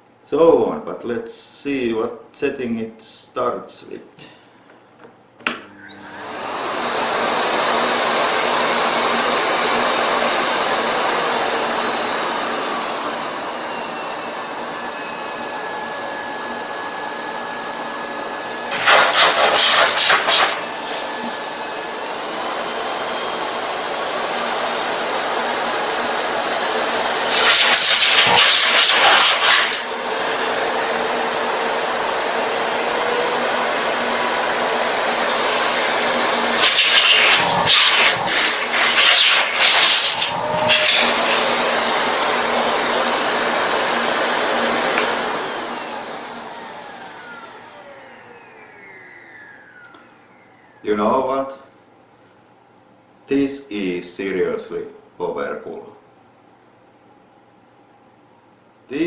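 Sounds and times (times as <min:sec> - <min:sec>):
vacuum cleaner switch click: 0:05.4 - 0:06.2, 0:44.8 - 0:45.2
vacuum cleaner running: 0:05.4 - 0:52.1.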